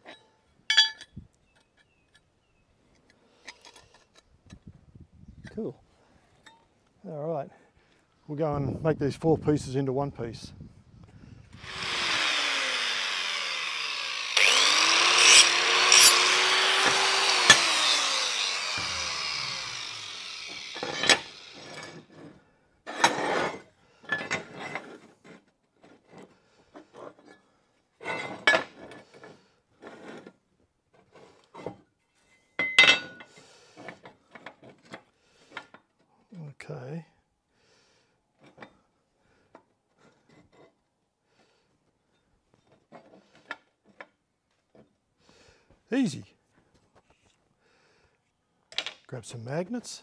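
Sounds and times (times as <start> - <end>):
steel pieces clanking and scraping: 0.0 - 2.3, 15.2 - 17.8, 18.7 - 22.2, 22.9 - 25.1, 28.0 - 29.0, 32.2 - 34.6
power grinder grinding steel: 11.6 - 22.2.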